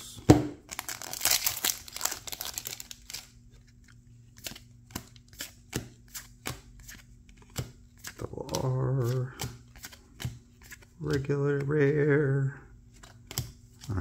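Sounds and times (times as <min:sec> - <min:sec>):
foil wrapper crinkling and tearing: 0:00.7 - 0:03.4
cards sliding with light clicks: 0:03.6 - 0:11.8.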